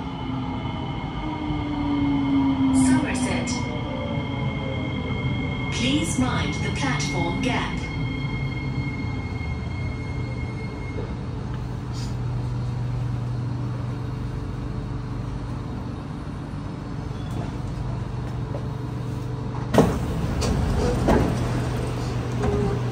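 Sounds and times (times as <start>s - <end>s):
train humming: 0.0s - 22.9s
train doors opening: 17.1s - 18.8s, 19.5s - 22.9s.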